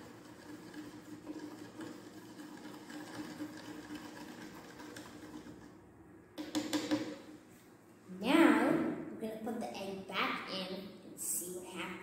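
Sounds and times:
stick stirring in plastic cup: 0:00.0 - 0:05.8.

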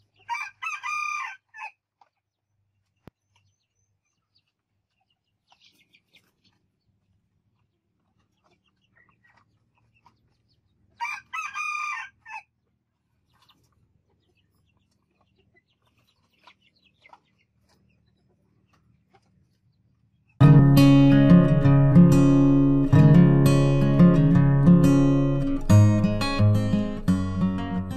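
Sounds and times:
chicken clucks and calls: 0:00.0 - 0:20.4
rooster crowing: 0:00.3 - 0:01.7, 0:11.0 - 0:12.4.

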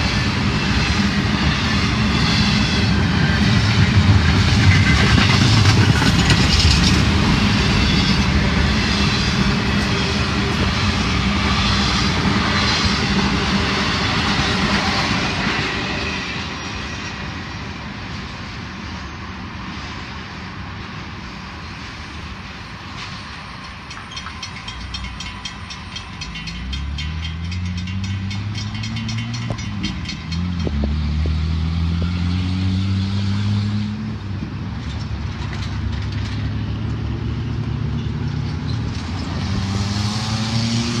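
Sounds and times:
freight train rumble: 0:00.0 - 0:41.0
vehicles accelerating past: 0:26.6 - 0:34.4, 0:35.6 - 0:41.0.

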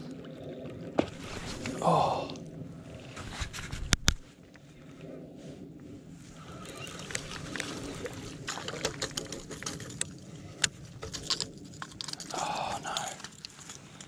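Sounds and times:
clicks and rattles of reel and lure: 0:06.5 - 0:14.0.

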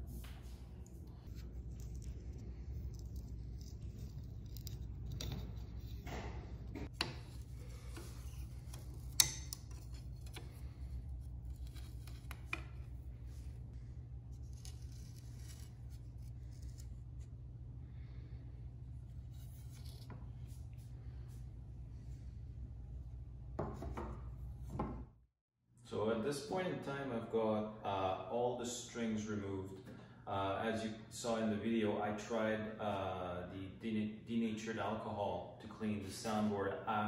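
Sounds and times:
low steady hum: 0:00.0 - 0:25.2.

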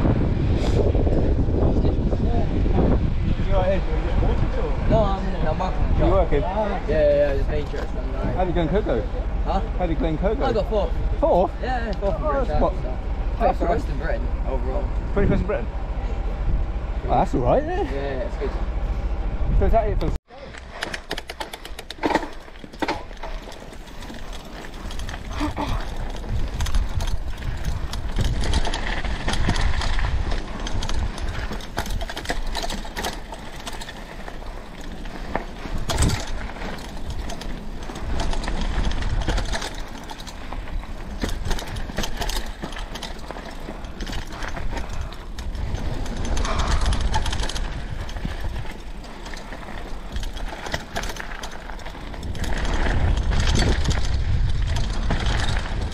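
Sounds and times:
low rumble: 0:00.0 - 0:20.2
bike clicking and rattling: 0:00.0 - 0:55.9
bike tyres on rough ground: 0:00.0 - 0:55.9.

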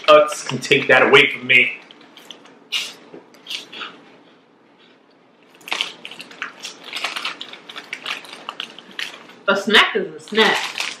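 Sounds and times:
crunching snacks: 0:05.5 - 0:09.4, 0:10.3 - 0:11.0
plastic snack bag crinkling: 0:05.5 - 0:11.0.

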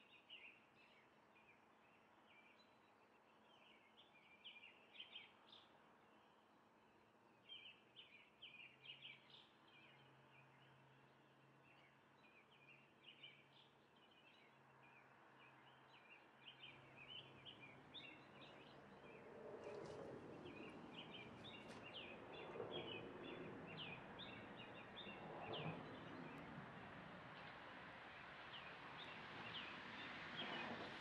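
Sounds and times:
small birds chirping: 0:11.7 - 0:26.4.

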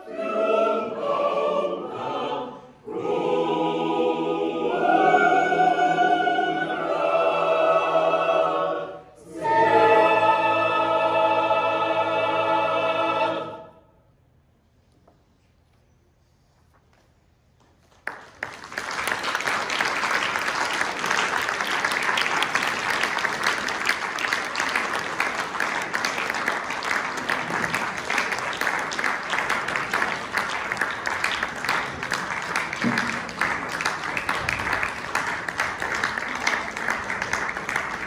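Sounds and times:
audience applauding: 0:17.9 - 0:38.0.

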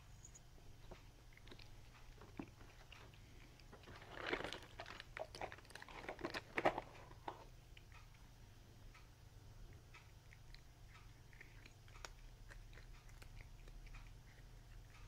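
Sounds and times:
kitten crunching treats: 0:00.9 - 0:08.2, 0:09.7 - 0:15.0.

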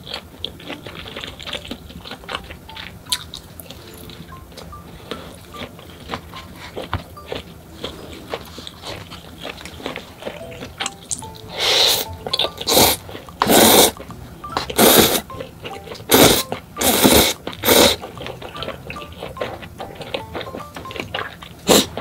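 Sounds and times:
chewing: 0:00.0 - 0:22.0
noodles being slurped: 0:07.8 - 0:15.3, 0:16.0 - 0:22.0.

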